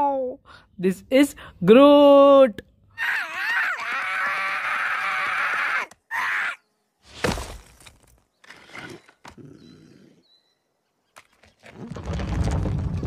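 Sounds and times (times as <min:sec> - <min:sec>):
body thudding onto rocky ground: 0:07.1 - 0:08.2.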